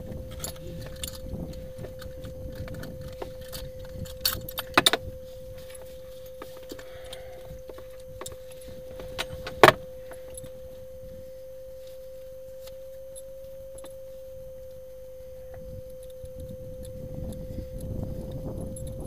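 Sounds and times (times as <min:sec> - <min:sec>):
steady tone: 0:00.0 - 0:19.0
small clicks and rattles: 0:00.1 - 0:10.6.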